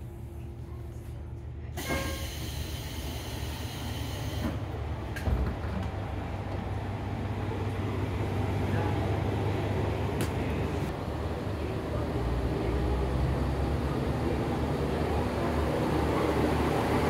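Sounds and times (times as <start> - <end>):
diesel railcar rumbling: 0.0 - 17.0
train door sliding open: 1.8 - 6.8.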